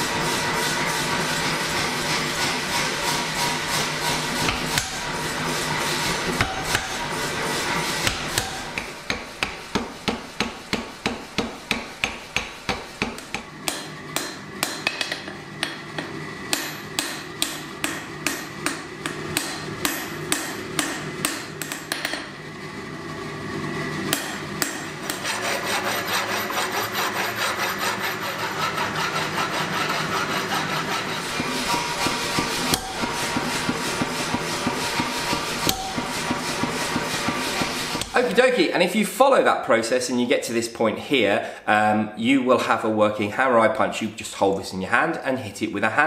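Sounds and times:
power hammer striking steel: 0:02.4 - 0:22.3, 0:24.1 - 0:26.6, 0:28.5 - 0:38.2
hammer blows on an anvil: 0:04.4 - 0:05.2, 0:06.3 - 0:07.1, 0:08.0 - 0:22.3, 0:31.2 - 0:38.2
angle grinder on steel: 0:25.0 - 0:38.2.

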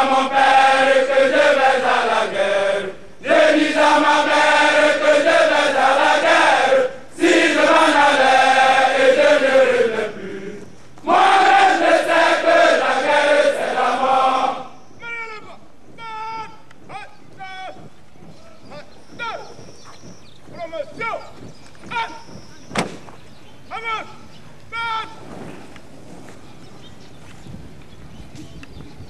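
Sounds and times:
group singing chant in unison: 0:00.0 - 0:14.8.

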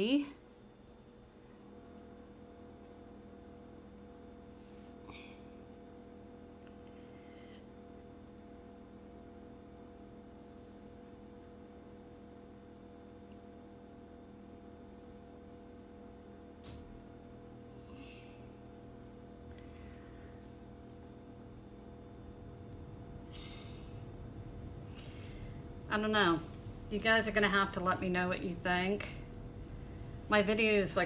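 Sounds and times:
faint electrical hum: 0:00.0 - 0:31.0
soft rustles: 0:24.9 - 0:30.5.

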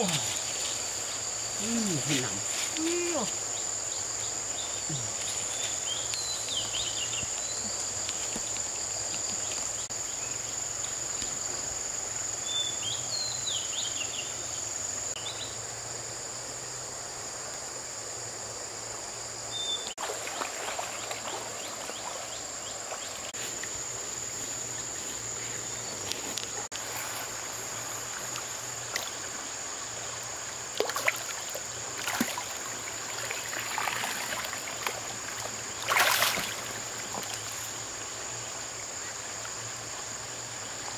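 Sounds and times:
insects droning: 0:00.0 - 0:40.9
running river water: 0:00.0 - 0:40.9
fish splashing: 0:20.0 - 0:22.2, 0:30.7 - 0:37.5.

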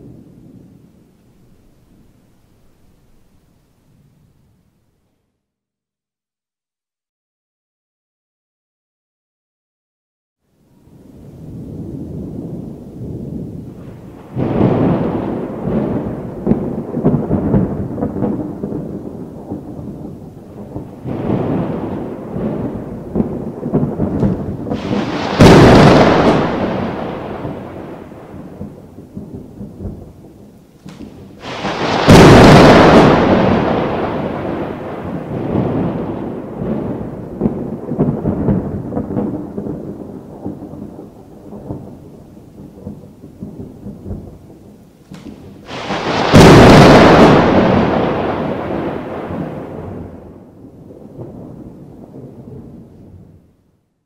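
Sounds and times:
thunder rumbling: 0:00.0 - 0:04.4, 0:10.8 - 0:53.8
sharp thunder cracks: 0:11.4 - 0:53.5.

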